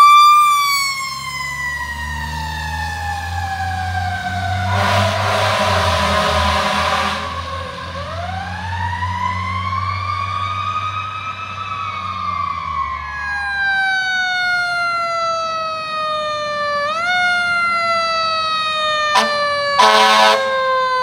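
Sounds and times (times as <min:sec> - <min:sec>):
siren wailing: 0:00.0 - 0:21.0
second siren tone: 0:09.0 - 0:21.0.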